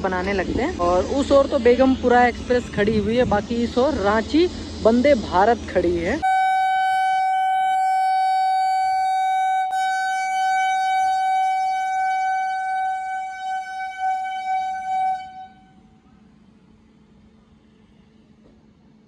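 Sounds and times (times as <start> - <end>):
train horn blast: 6.2 - 16.0.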